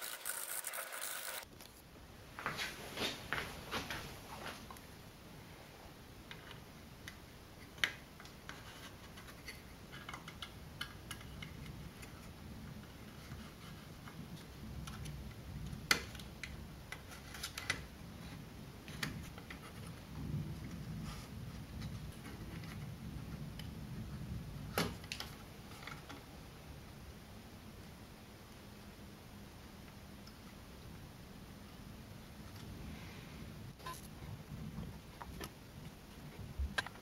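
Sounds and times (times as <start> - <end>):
hands scraping and rubbing parts: 6.2 - 23.4.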